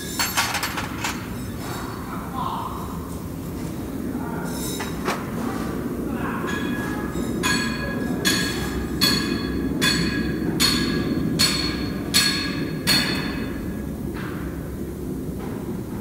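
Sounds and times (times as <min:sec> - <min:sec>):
metal clanks: 0:00.0 - 0:01.9
machinery hum: 0:00.0 - 0:16.0.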